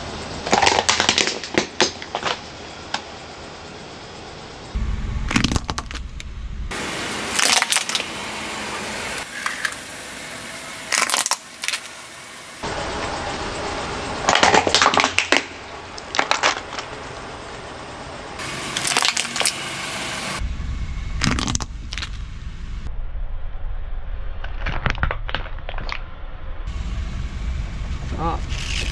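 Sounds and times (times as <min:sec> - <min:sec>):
plastic toys cracking under tyre: 0:00.4 - 0:03.0, 0:07.4 - 0:08.0, 0:10.9 - 0:11.9, 0:14.3 - 0:16.9, 0:18.8 - 0:19.6, 0:24.5 - 0:26.0.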